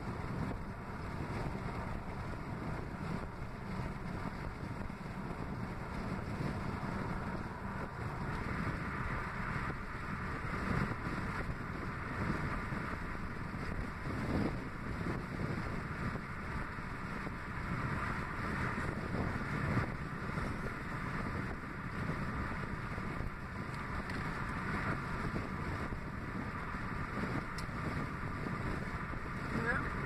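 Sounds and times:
road noise inside car: 0.0 - 30.0
wind buffeting microphone: 0.0 - 30.0.

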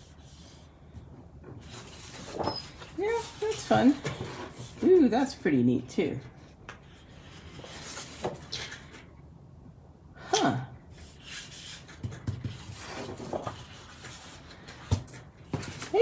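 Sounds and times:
paper sheets rustling: 1.6 - 5.0, 11.0 - 16.0.

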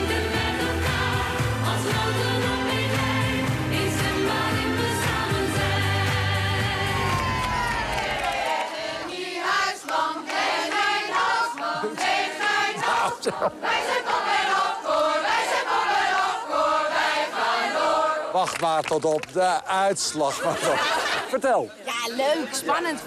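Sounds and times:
theme music: 0.0 - 8.4
women's choir singing unaccompanied: 0.0 - 18.4.

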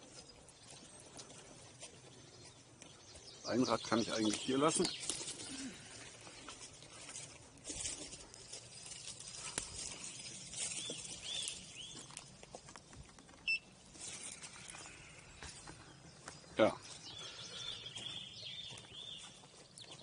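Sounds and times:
footsteps on dry leaves: 0.0 - 13.0, 13.8 - 20.0
tyre crackling over leaves: 3.5 - 15.7
twigs snapping: 4.3 - 5.6, 8.9 - 13.3
bird calling: 13.4 - 19.4.

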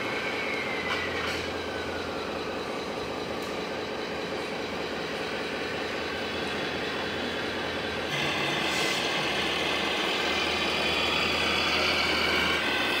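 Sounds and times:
machinery hiss: 8.1 - 13.0.

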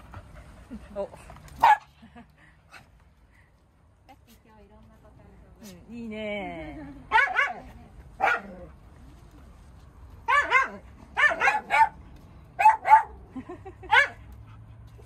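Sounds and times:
small dogs barking high-pitched: 1.6 - 1.9, 7.1 - 8.6, 10.2 - 12.0, 12.6 - 13.2, 13.8 - 14.2.

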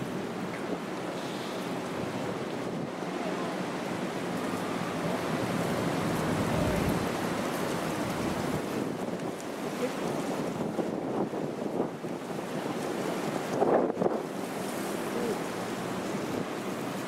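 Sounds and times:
wind on microphone: 5.3 - 15.5.

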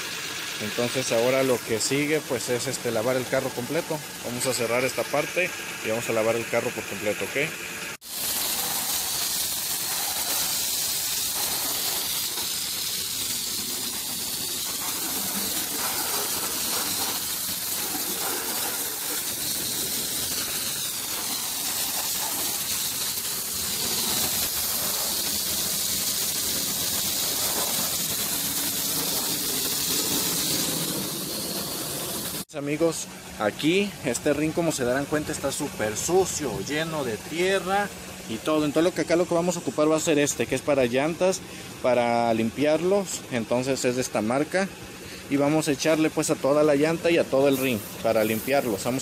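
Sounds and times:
water spray jet hitting car: 8.0 - 32.4.

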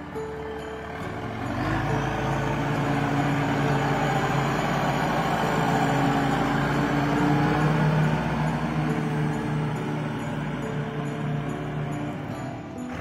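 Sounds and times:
diesel engine driving past: 0.0 - 13.0.

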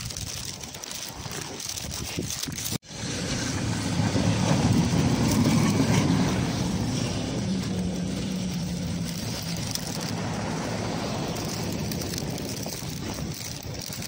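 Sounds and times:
tram rumbling past: 2.8 - 13.1.

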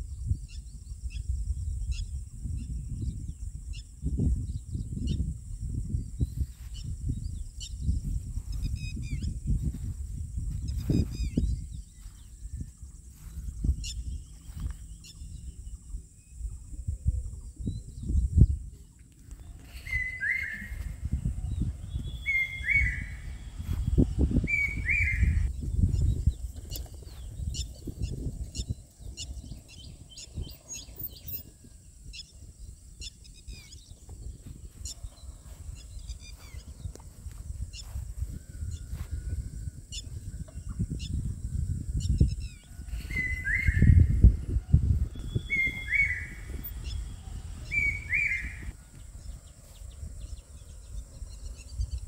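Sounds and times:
bird calls dropping in pitch: 45.2 - 47.0.

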